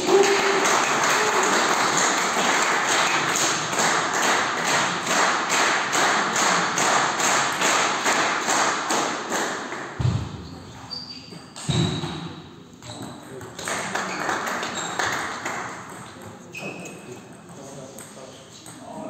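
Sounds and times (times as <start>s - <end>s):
spectators clapping in rhythm: 0.0s - 10.0s, 13.6s - 15.9s.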